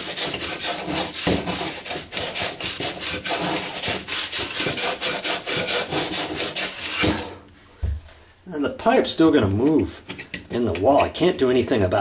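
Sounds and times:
emery cloth rasping on pipe: 0.0s - 7.4s.

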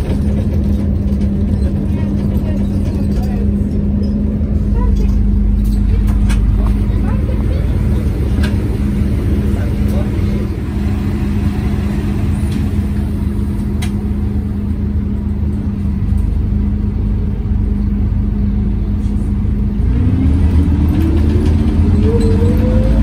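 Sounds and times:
bus engine rumble: 0.0s - 23.0s
gearbox whine rising: 19.9s - 23.0s.

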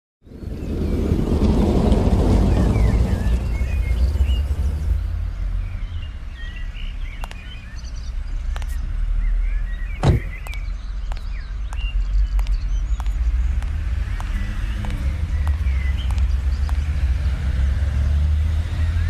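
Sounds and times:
birds chirping: 0.2s - 19.0s
car door slamming: 10.0s - 10.4s.

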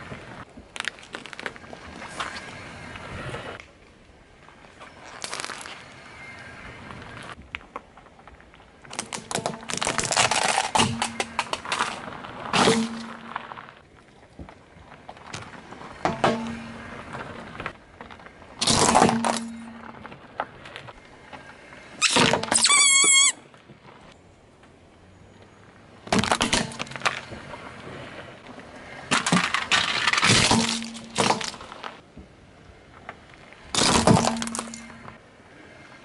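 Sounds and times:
short wavering squeal: 22.0s - 23.4s
tyre crushing objects: 33.8s - 35.0s.

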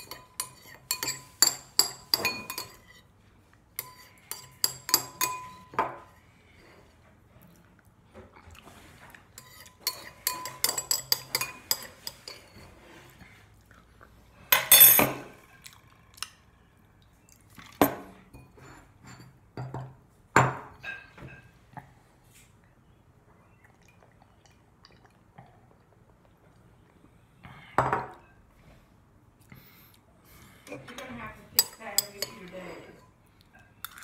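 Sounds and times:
spoon clinking on ceramic bowl: 0.0s - 3.0s, 3.8s - 6.1s, 9.4s - 12.6s, 31.0s - 33.2s.

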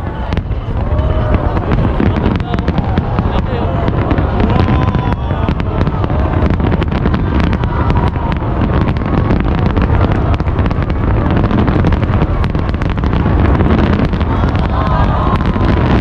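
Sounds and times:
fireworks booming: 0.0s - 16.0s
fireworks cracking and crackling: 0.0s - 16.0s.

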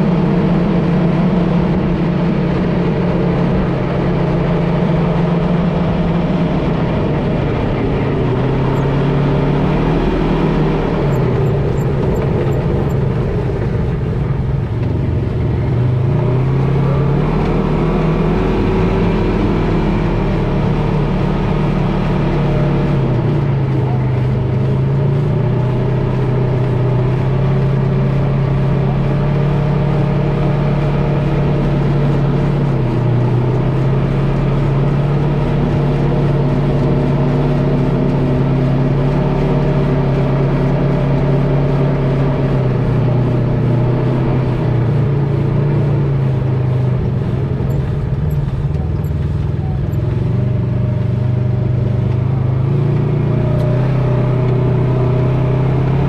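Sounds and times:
drivetrain low drone: 0.0s - 56.0s.

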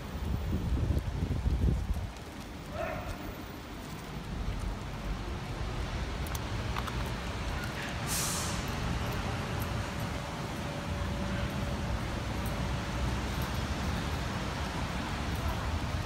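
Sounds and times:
rain rushing: 0.0s - 16.0s
street traffic rumble: 0.0s - 16.0s
brief high hiss: 8.0s - 8.7s.

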